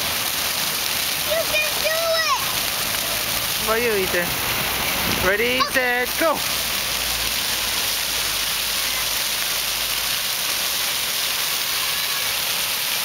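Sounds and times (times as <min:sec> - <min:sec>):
fountain water splashing: 0:00.0 - 0:13.0.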